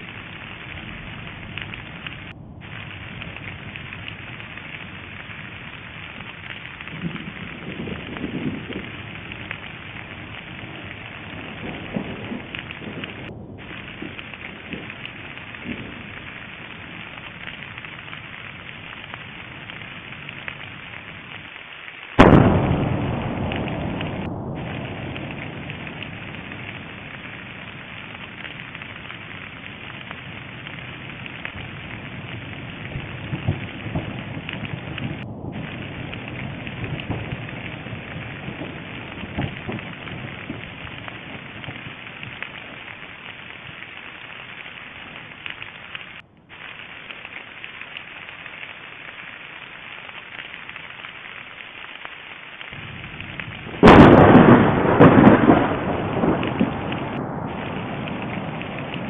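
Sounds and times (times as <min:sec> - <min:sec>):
volcano rushing noise: 0:00.0 - 0:59.0
loud boom: 0:22.2 - 0:28.4, 0:52.8 - 0:59.0.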